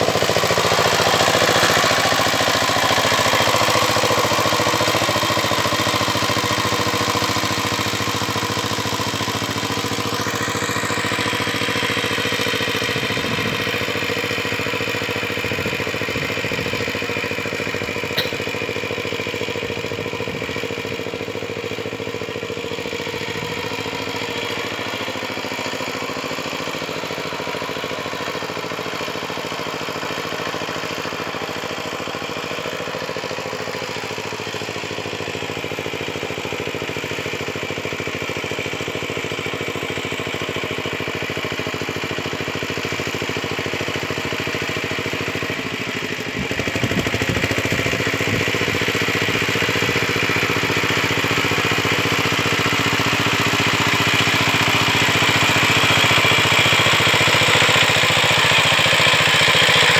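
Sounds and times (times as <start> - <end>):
power tiller engine running: 0.0 - 59.9
sharp click: 18.2 - 18.6.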